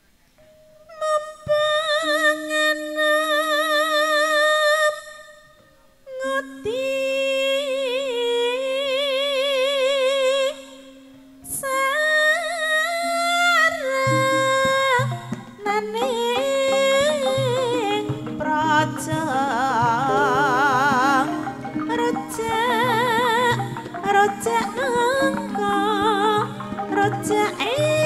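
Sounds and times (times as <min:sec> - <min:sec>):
woman singing with vibrato: 0:00.9 - 0:05.5, 0:06.1 - 0:28.0
low instrument notes: 0:14.0 - 0:28.0.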